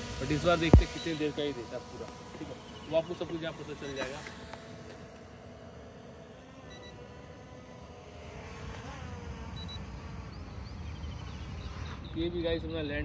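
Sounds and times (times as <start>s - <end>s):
drone propellers whining: 0.0s - 12.8s
short electronic beeps: 6.7s - 7.0s, 9.6s - 9.8s.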